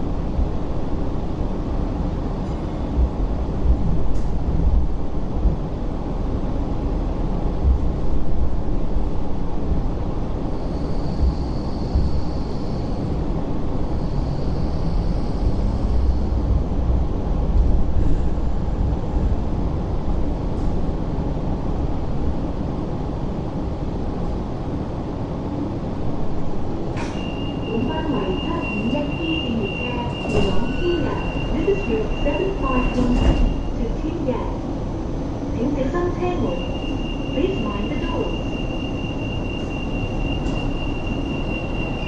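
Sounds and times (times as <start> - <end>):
rumble of wheels on rail: 0.0 - 42.0
faint high wheel squeal: 27.1 - 33.7, 36.3 - 42.0
steady high beep: 27.2 - 33.6.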